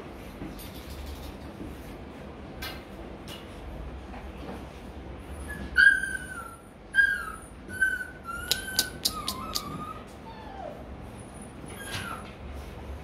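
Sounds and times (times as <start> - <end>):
puppy whining: 5.2 - 12.7
sharp clicks: 8.5 - 9.8.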